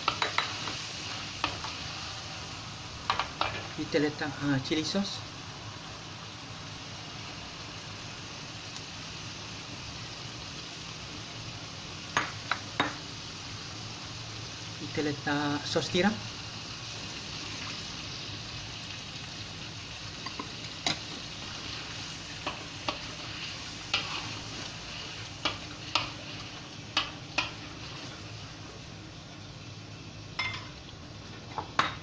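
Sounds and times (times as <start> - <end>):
sauce sizzling in a wok: 0.0 - 32.0
spatula scraping a metal wok: 20.8 - 26.6.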